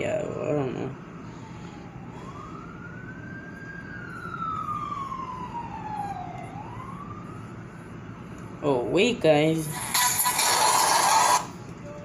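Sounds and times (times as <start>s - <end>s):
siren wailing: 1.3s - 7.8s.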